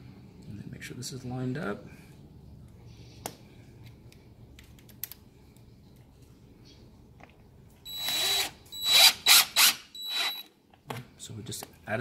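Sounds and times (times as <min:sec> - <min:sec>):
cordless driver whining: 0:07.9 - 0:10.5
driver trigger bursts: 0:07.9 - 0:10.5.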